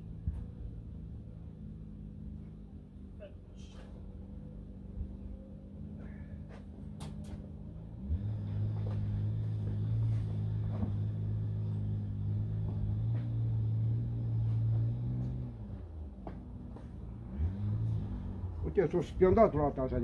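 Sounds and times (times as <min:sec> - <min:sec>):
light handling clicks and knocks: 0:06.4 - 0:07.6.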